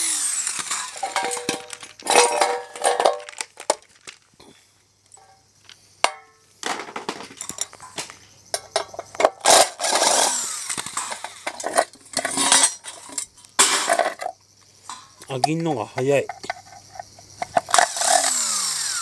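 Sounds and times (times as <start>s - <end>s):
screwdriver grinding and scraping: 0.0s - 3.0s, 8.8s - 14.3s, 16.3s - 19.0s.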